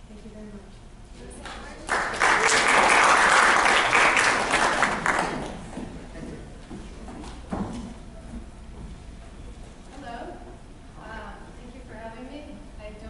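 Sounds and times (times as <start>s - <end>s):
audience applauding: 1.5s - 5.9s.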